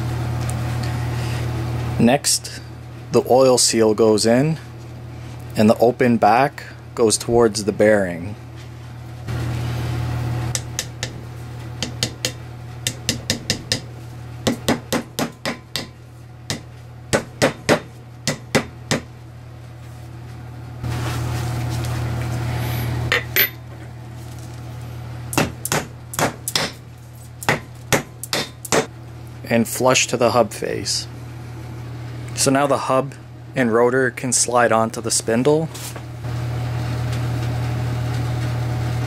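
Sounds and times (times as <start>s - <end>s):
hammer tapping metal: 10.5s - 11.2s, 11.8s - 13.9s, 14.5s - 19.1s, 25.4s - 26.8s, 27.4s - 28.9s.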